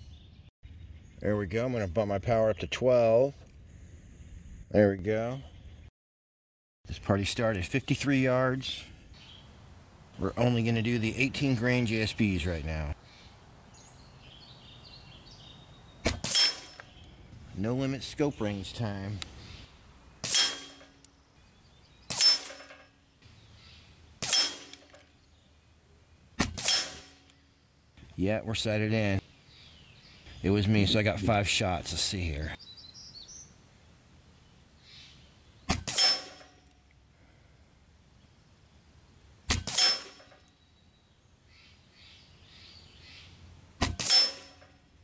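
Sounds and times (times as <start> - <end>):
air rifle shots: 16.0 - 17.0, 20.2 - 21.0, 22.1 - 22.8, 24.2 - 25.0, 26.4 - 27.3, 35.7 - 36.5, 39.5 - 40.4, 43.8 - 44.7
short metallic ring: 16.2 - 16.9, 24.2 - 25.0, 26.6 - 27.3, 44.0 - 44.9.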